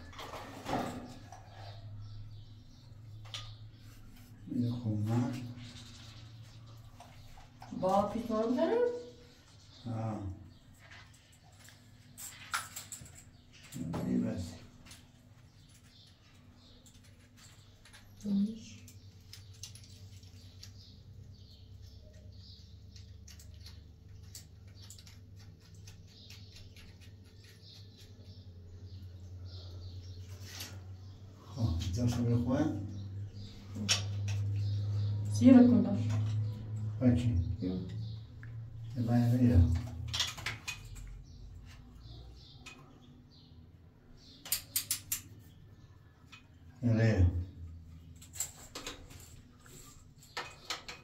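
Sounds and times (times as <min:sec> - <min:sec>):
metal fittings clicking and tapping: 0:44.4 - 0:45.3.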